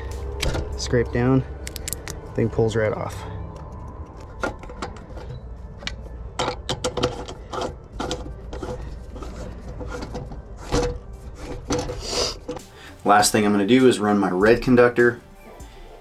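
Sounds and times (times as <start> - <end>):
hand tool clicks and knocks: 1.6 - 2.2, 3.5 - 8.7.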